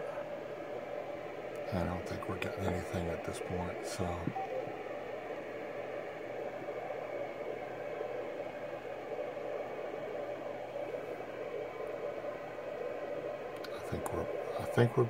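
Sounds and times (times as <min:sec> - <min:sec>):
radio receiver hiss: 0:00.0 - 0:15.0.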